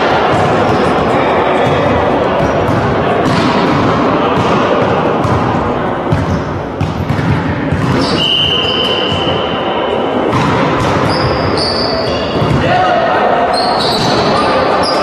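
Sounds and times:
voices echoing in hall: 0.0 - 15.0
volleyball hits and thuds: 1.6 - 9.5, 10.3 - 11.6.

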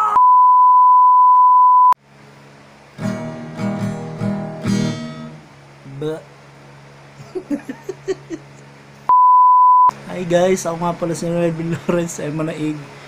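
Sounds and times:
acoustic guitar strumming: 3.0 - 5.5
test-tone beep: 9.1 - 9.9.

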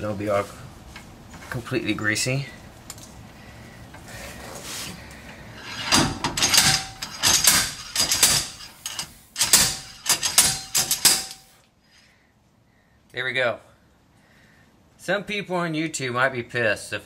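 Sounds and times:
slide hammer metallic knocks: 5.7 - 11.5.

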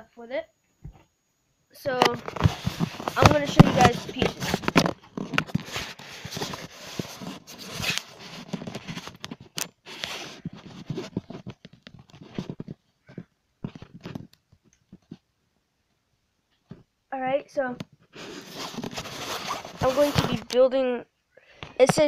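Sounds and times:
scraping and rustling: 1.9 - 14.3, 18.0 - 20.6.

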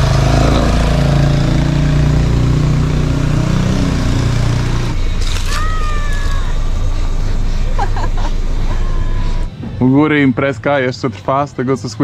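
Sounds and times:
car engine running at low revs: 0.0 - 5.5.

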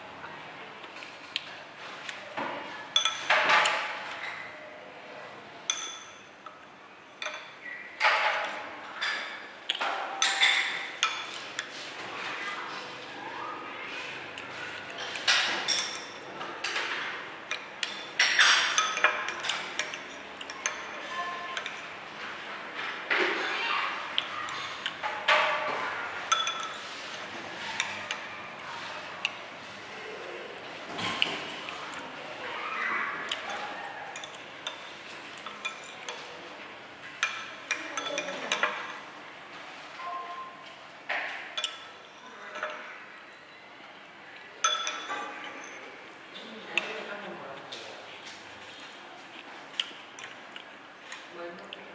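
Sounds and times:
utensils clinking against dishes: 2.0 - 4.6, 5.6 - 13.0, 14.3 - 29.4, 33.2 - 39.2, 40.0 - 43.0, 44.6 - 51.3.

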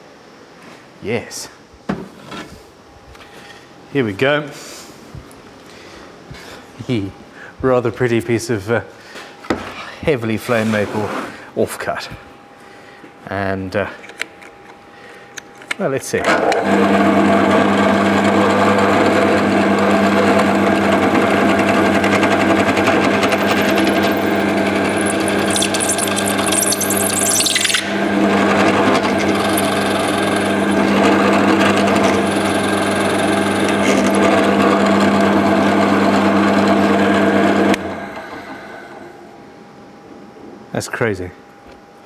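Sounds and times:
drill motor hum: 16.2 - 39.4
drill bit scraping wood: 16.6 - 38.7.

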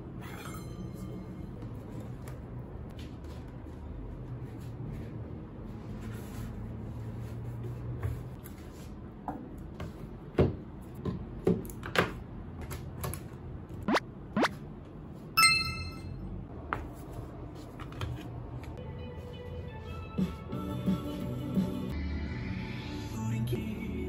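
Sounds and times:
short bright chime: 15.4 - 16.2
faint music: 18.6 - 24.0.

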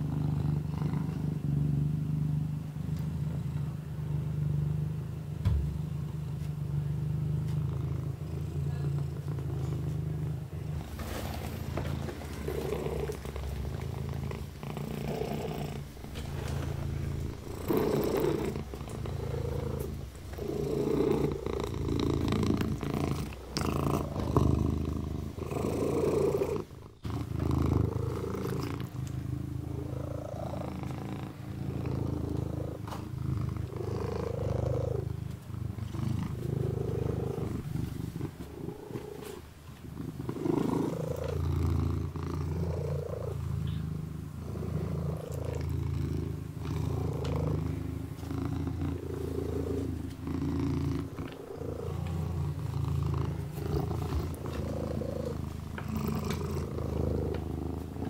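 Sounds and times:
kitten purring: 0.0 - 58.0.

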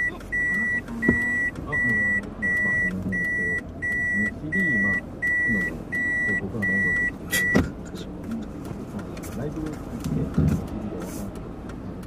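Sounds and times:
reverse warning beeps: 0.0 - 7.6.

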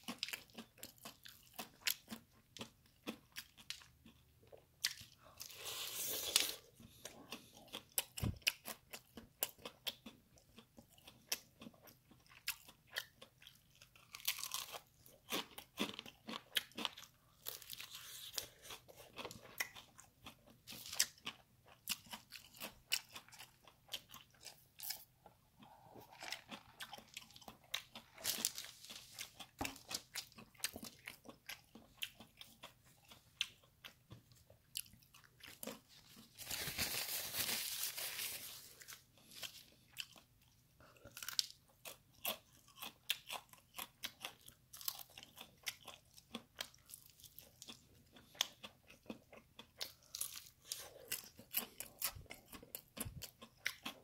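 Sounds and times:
crunching and chewing fried chicken: 0.0 - 54.0.

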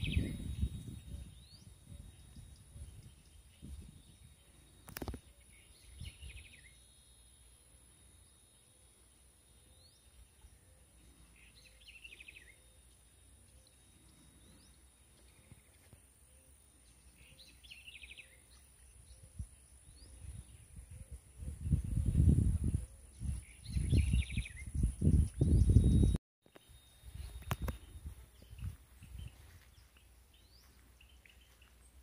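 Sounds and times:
low wind rumble: 0.0 - 4.7, 19.2 - 26.2.

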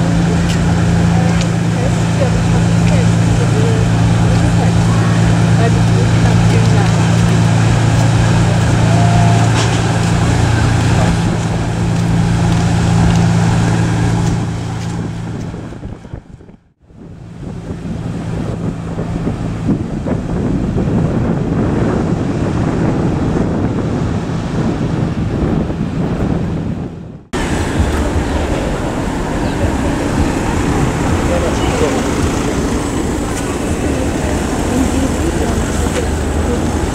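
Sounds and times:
boat engines running: 0.0 - 36.9
wake water rushing: 0.0 - 36.9
wind buffeting microphone: 0.0 - 36.9.

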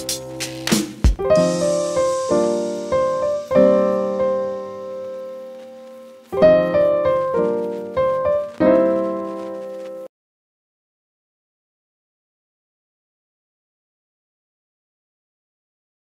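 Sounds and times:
slow piano chords: 1.1 - 10.1.

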